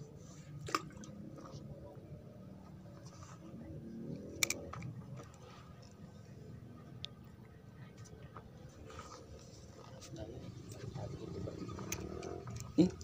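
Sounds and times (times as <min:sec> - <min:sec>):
distant voices murmuring: 0:00.0 - 0:13.0
handling and rubbing noises: 0:02.6 - 0:03.8, 0:07.9 - 0:13.0.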